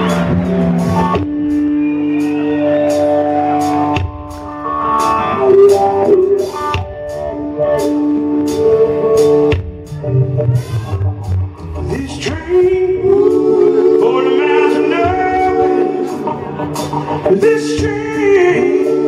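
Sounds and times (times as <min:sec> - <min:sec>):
electric guitar sustained notes: 0:00.0 - 0:19.0
live blues-rock band playing: 0:00.0 - 0:19.0.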